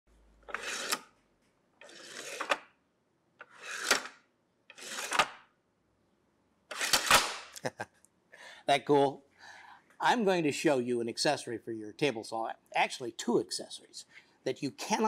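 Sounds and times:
wood-on-wood sliding scrapes: 0.5 - 1.0, 1.8 - 2.6, 3.4 - 4.1, 4.7 - 5.2.

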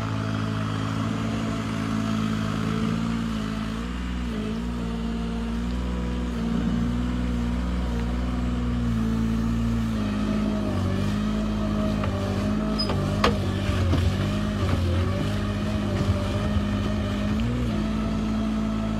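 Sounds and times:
engine running: 0.0 - 18.9.

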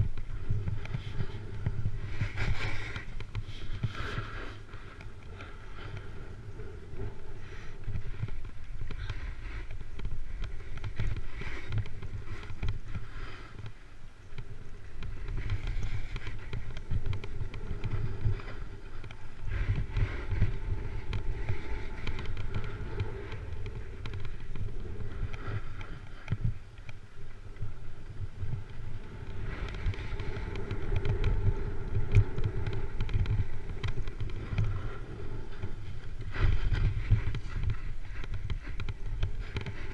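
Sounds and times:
snowboard scraping over snow: 0.0 - 13.8, 14.5 - 27.2, 27.8 - 39.9
wind rumble on microphone: 0.0 - 39.9.

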